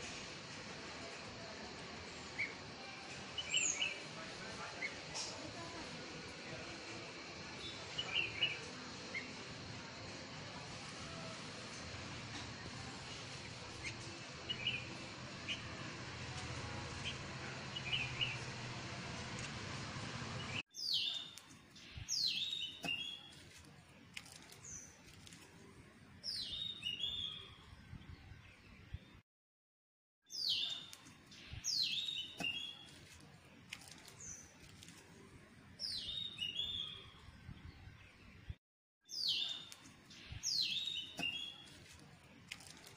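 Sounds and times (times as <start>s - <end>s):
bird singing whistled notes: 26.3s - 27.6s, 35.8s - 37.2s, 39.1s - 41.6s.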